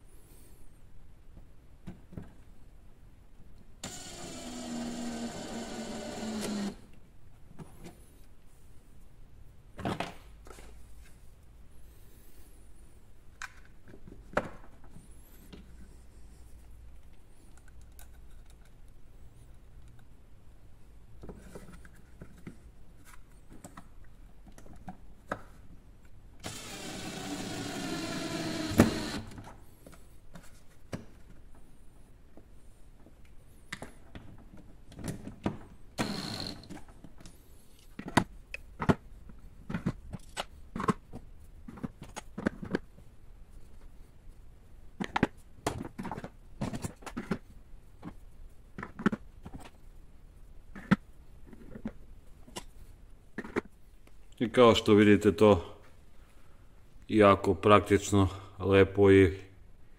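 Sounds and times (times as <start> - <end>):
drill clutch click: 3.8 - 6.8, 26.4 - 29.3, 36.0 - 36.7
cordless drill whining: 3.8 - 6.9, 26.4 - 29.4, 36.0 - 36.8.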